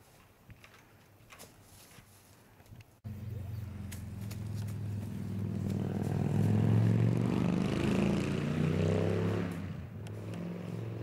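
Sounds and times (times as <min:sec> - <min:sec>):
passing vehicle engine hum: 0:03.1 - 0:11.0.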